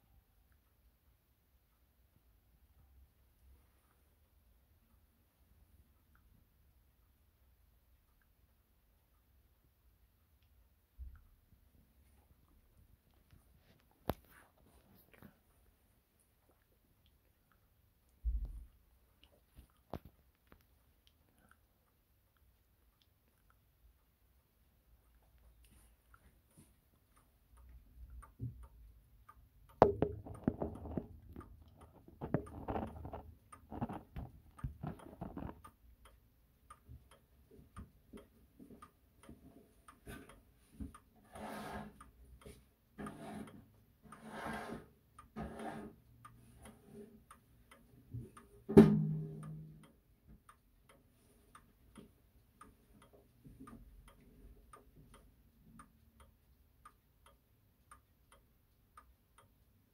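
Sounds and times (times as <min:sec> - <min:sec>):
clock ticking: 0:00.0 - 0:59.9
knocks and rubbing on clock case: 0:29.8 - 0:31.2.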